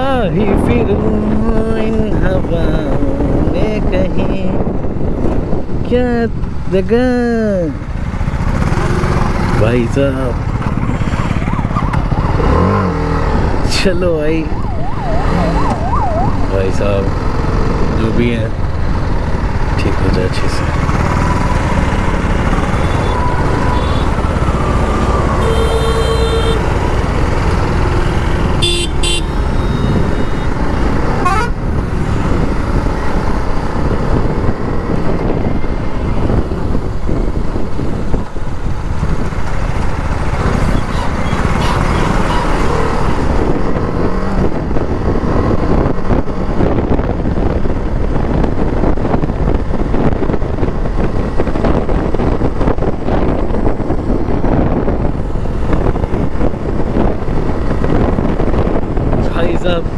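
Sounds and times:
wind rushing: 0.0 - 6.7, 10.3 - 59.9
vehicle horn: 22.7 - 24.2, 25.4 - 26.8, 28.1 - 30.5, 31.2 - 31.6.

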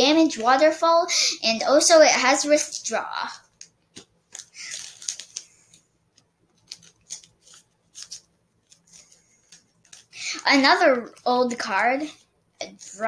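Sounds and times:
trading cards rustling: 3.5 - 13.0.

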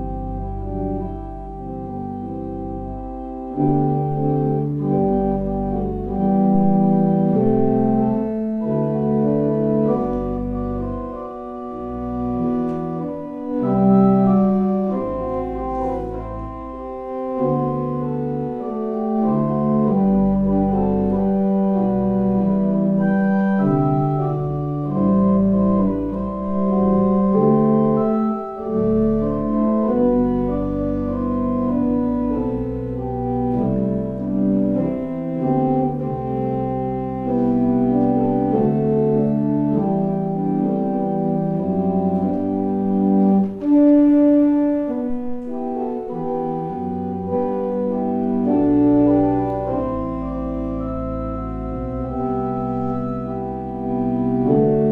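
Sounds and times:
church organ playing chords: 0.0 - 54.9.

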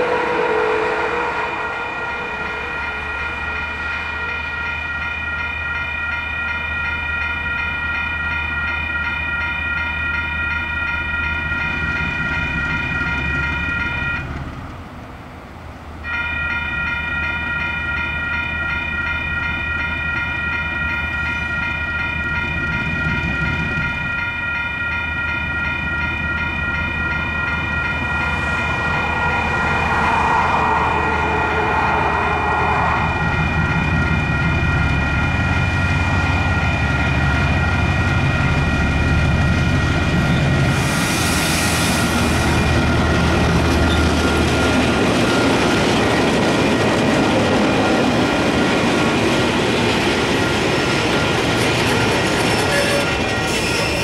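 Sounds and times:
crossing warning bells ringing: 0.0 - 54.0
diesel locomotive rumble: 11.3 - 16.1, 22.0 - 54.0.

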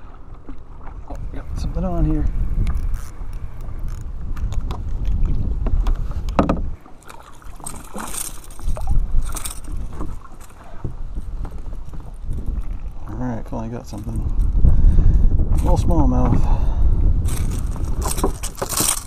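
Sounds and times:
wind rumbling on microphone: 0.0 - 19.0
fishing reel cranking: 2.7 - 4.1
fish splashing: 6.9 - 10.9.

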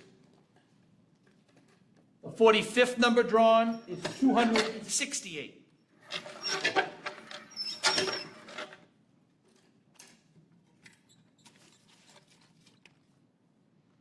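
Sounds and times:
paper rustling: 11.5 - 13.2.

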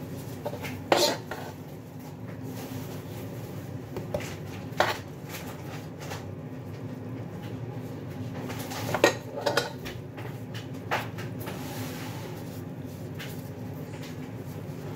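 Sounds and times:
kitchen knocks and clinks: 8.9 - 10.0.

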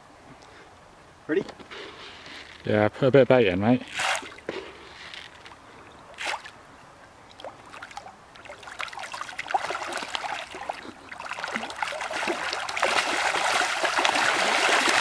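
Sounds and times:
fish splashing and slurping: 7.3 - 15.0.

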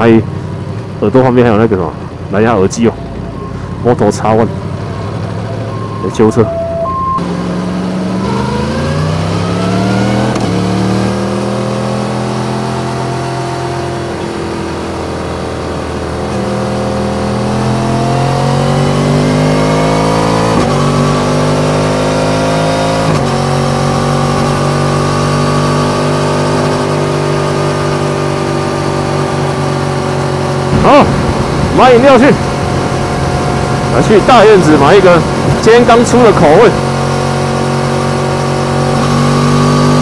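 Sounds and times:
motorcycle engine accelerating: 2.9 - 40.0
wind rushing: 30.7 - 35.7.

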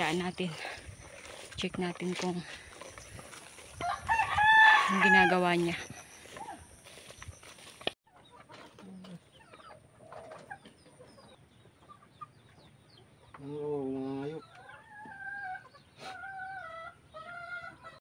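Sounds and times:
chickens clucking: 0.0 - 18.0
rooster crowing: 3.7 - 5.7
loud drawn-out chicken call: 3.8 - 5.4.

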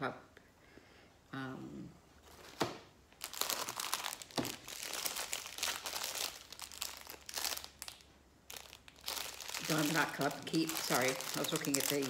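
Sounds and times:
plastic packaging crinkling: 3.2 - 12.0.

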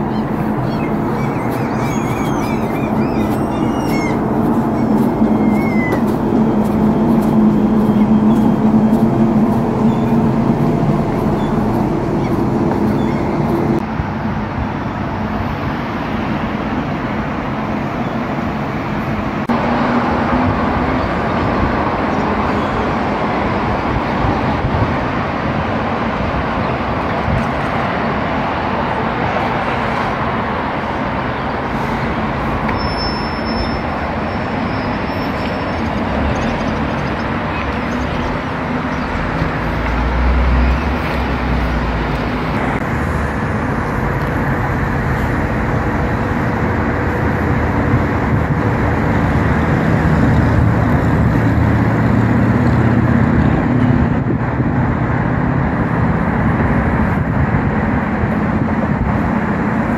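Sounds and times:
deep rumble: 0.0 - 13.8
road traffic noise: 0.0 - 59.9.

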